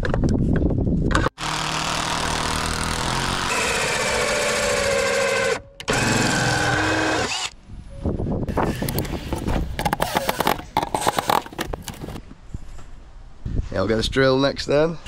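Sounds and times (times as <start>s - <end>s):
drill hole saw cutting plastic: 1.4s - 7.6s, 8.5s - 12.2s.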